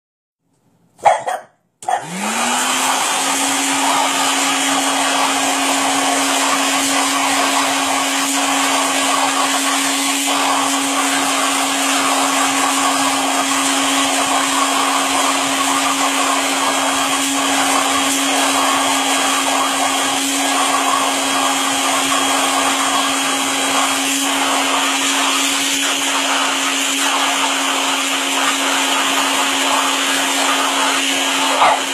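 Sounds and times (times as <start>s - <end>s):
vacuum cleaner motor running: 1.8s - 31.9s.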